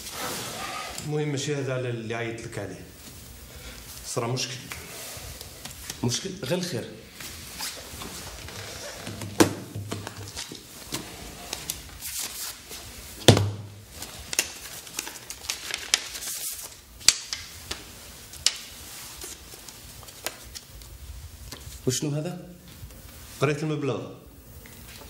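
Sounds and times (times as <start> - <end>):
paper rustling: 7.1 - 13.1, 13.9 - 21.8.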